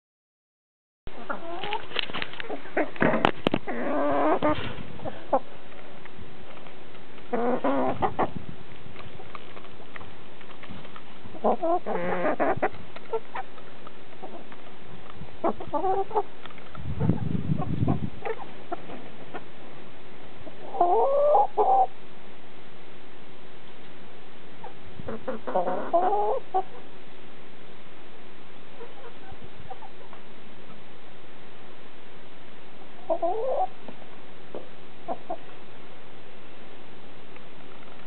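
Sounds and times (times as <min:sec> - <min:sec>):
hens clucking: 0:01.1 - 0:19.8, 0:20.4 - 0:22.0, 0:24.6 - 0:26.9, 0:28.7 - 0:30.8, 0:32.9 - 0:35.7.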